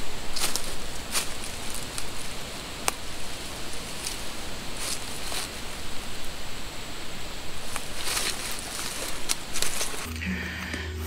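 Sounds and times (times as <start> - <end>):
footsteps crunching dry leaves: 0.0 - 10.2
twig snap: 0.4 - 6.4, 7.6 - 10.1.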